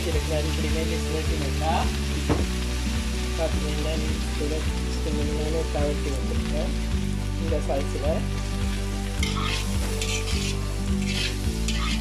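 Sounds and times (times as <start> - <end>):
vegetables sizzling in a pan: 0.0 - 12.0
metal spatula scraping pan: 9.2 - 12.0.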